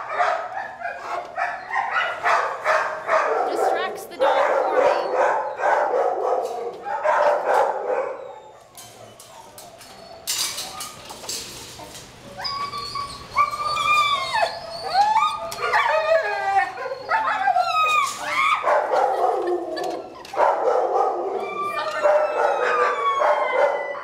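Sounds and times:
dog whining and yelping: 4.6 - 5.7, 6.5 - 11.2, 12.2 - 24.0.

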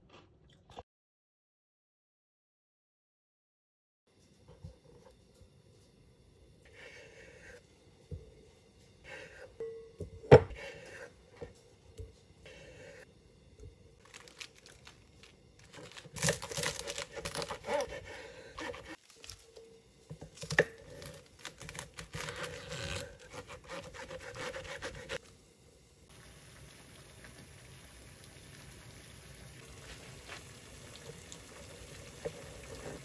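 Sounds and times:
knife slicing lettuce: 15.6 - 19.5, 20.3 - 25.2
knife cutting on wooden board: 16.2 - 19.0, 20.4 - 25.2.

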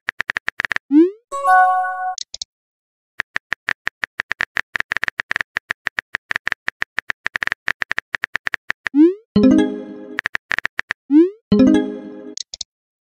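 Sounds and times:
rapid keyboard typing clicks: 0.1 - 0.8, 3.2 - 9.0, 10.1 - 11.0.

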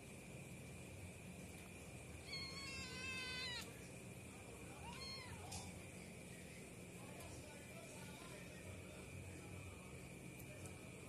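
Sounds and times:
cat meowing: 2.2 - 3.7, 4.8 - 5.6.

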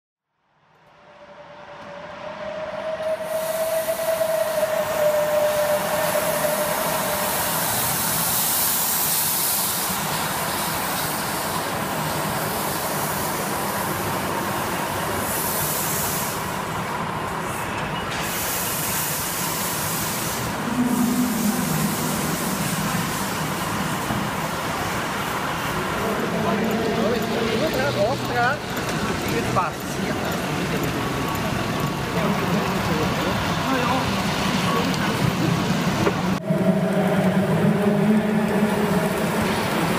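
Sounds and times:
steam hissing: 2.3 - 39.9
held tone: 20.5 - 24.2.

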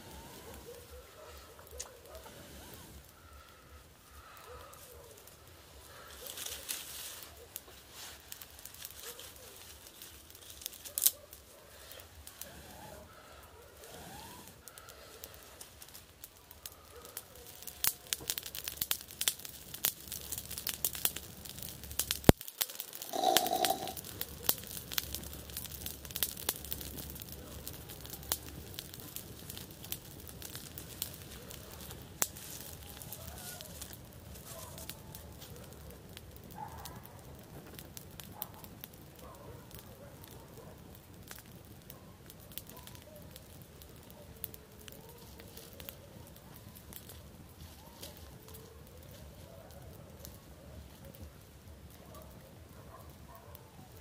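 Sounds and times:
campfire crackling and popping: 0.0 - 54.0.

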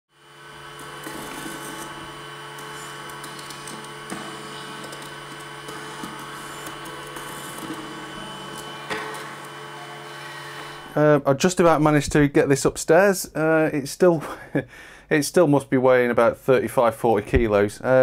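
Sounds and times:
tape drive motor hum: 0.1 - 11.0
mechanical clicks and whirs: 0.2 - 11.0.

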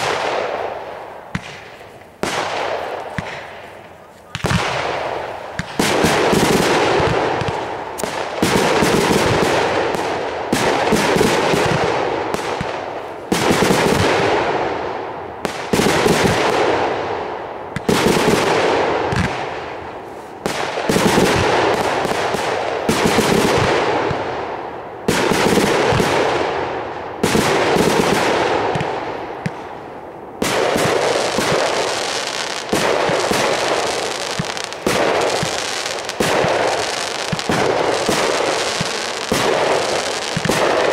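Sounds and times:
firework popping: 0.0 - 14.2, 30.4 - 40.9
firework bangs: 0.0 - 40.9.

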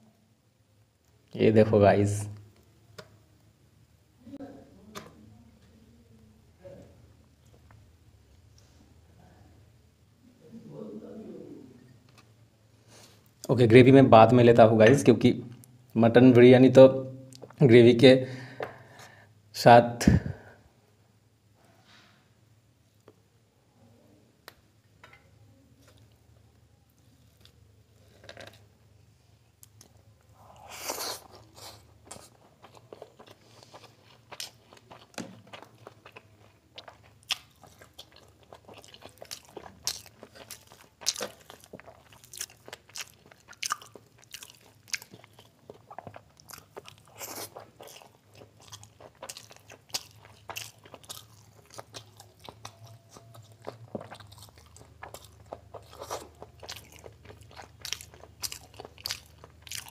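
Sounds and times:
chewing with mouth clicks: 30.6 - 59.9.

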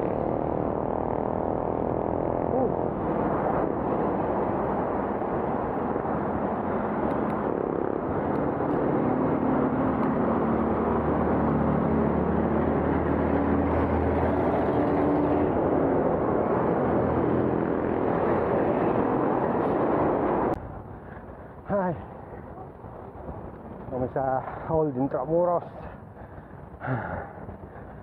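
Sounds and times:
vehicle engine running close by: 0.0 - 20.6
city street traffic: 0.0 - 28.0
wind on microphone: 0.0 - 28.0.

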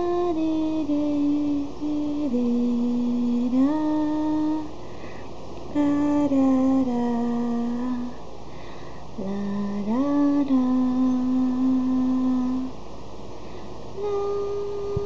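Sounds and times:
slow melody of held notes: 14.0 - 15.0.

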